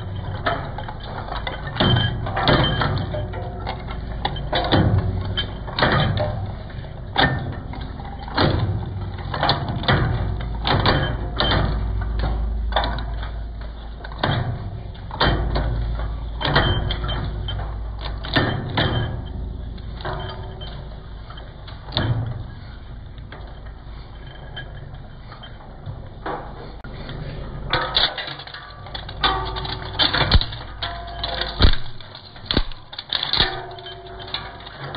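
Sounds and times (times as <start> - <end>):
plastic cracking in shredder: 28.0 - 34.9.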